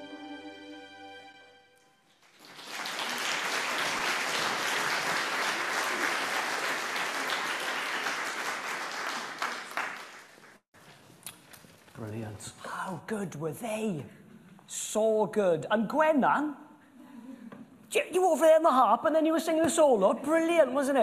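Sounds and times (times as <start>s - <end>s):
congregation applauding: 2.1s - 10.6s.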